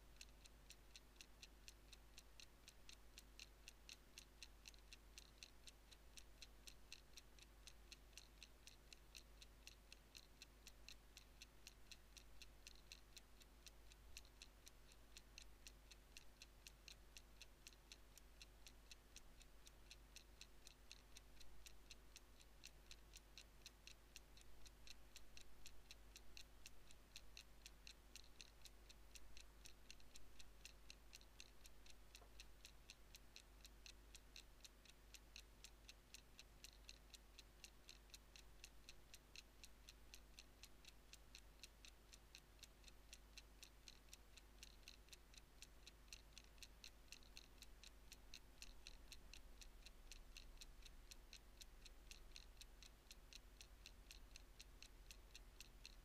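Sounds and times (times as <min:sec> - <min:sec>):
low steady hum: 0:00.0 - 0:56.0
pocket watch ticking: 0:00.0 - 0:56.0.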